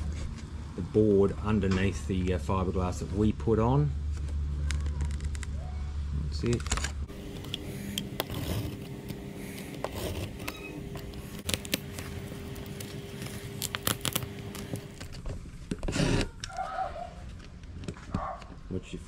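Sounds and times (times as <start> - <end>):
knife scoring fibreglass: 7.4 - 15.0.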